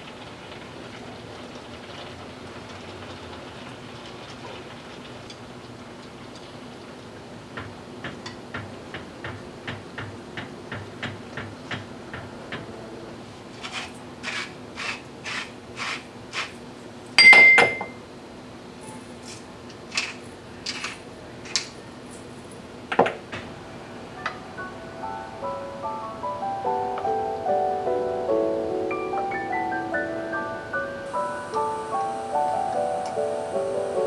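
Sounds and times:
pepper grinder grinding: 0:13.6 - 0:16.6, 0:19.3 - 0:21.7
ringing clink: 0:17.2 - 0:18.0.

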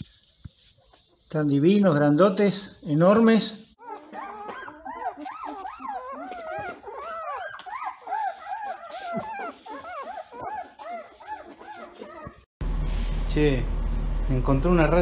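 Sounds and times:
puppy squealing and whimpering: 0:03.8 - 0:12.5.

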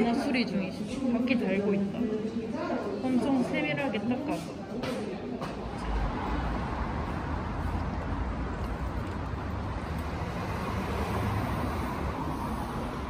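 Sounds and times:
cars driving past: 0:05.4 - 0:13.0.

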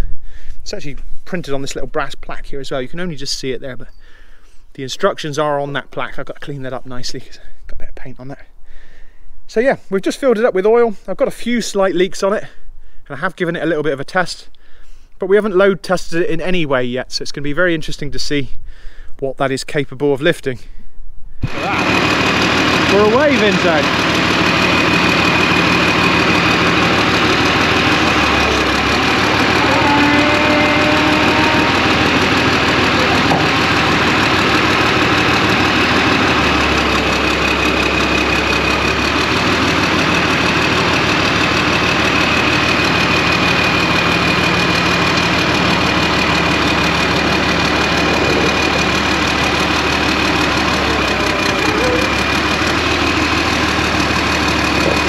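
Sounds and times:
diesel engine running: 0:21.4 - 0:55.0
hydraulic crane whine: 0:21.4 - 0:55.0.

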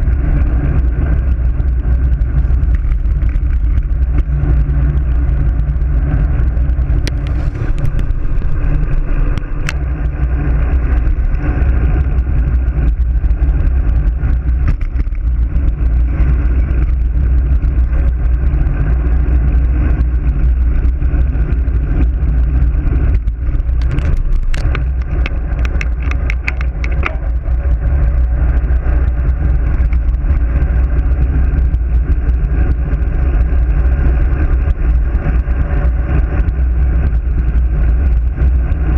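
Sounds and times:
tyre noise on asphalt: 0:00.0 - 0:38.9
wind rushing over microphone: 0:00.0 - 0:38.9
sharp ticks: 0:23.1 - 0:30.2.

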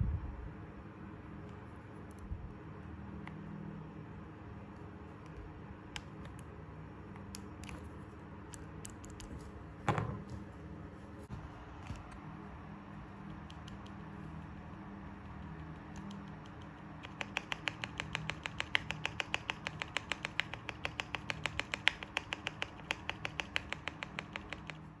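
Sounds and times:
low steady hum: 0:00.0 - 0:25.0
keyboard key clicks: 0:15.2 - 0:24.9.

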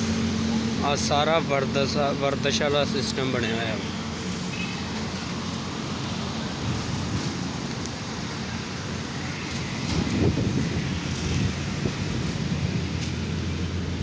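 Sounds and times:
road traffic rumble: 0:00.0 - 0:14.0
wind on microphone: 0:09.7 - 0:13.1.

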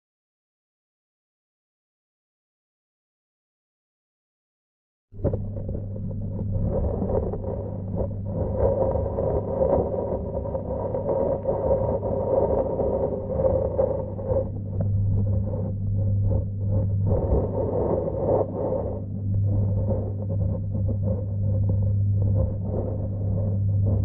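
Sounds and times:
muffled underwater rumble: 0:05.2 - 0:24.0
steady low hum: 0:05.2 - 0:24.0.

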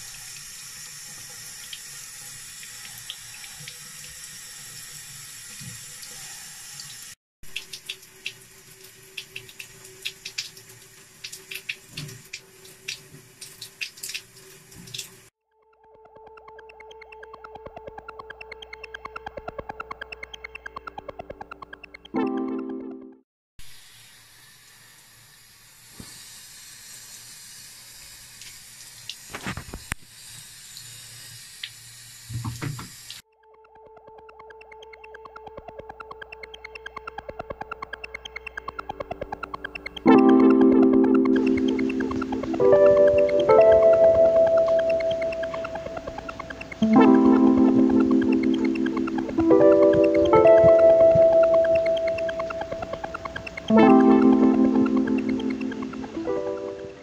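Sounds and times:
tap water running into basin: 0:00.0 - 0:15.3
water splashing and dripping: 0:00.0 - 0:15.3, 0:25.9 - 0:33.2, 0:34.0 - 0:56.8.

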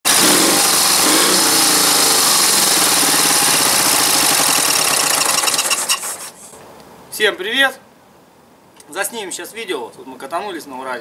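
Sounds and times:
motorcycle engine idling: 0:00.1 - 0:05.7.

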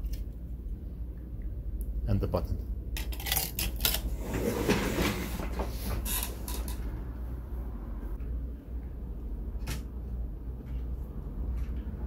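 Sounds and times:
steady low hum: 0:00.0 - 0:04.8.

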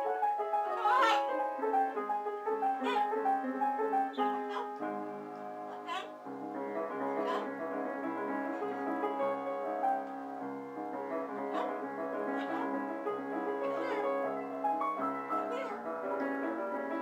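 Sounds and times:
piano chords: 0:00.0 - 0:17.0.

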